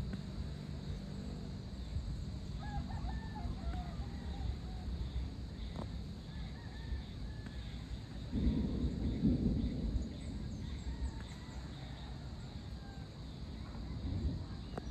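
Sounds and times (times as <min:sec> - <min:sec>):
steady low rumble: 0:00.0 - 0:14.9
rooster crowing: 0:02.6 - 0:05.0, 0:06.2 - 0:07.9, 0:10.7 - 0:13.1.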